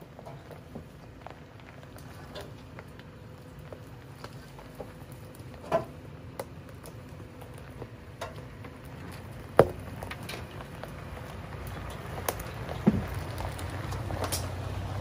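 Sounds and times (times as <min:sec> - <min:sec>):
low steady vehicle rumble: 0:00.0 - 0:15.0
brush and twigs snapping: 0:09.6 - 0:14.6.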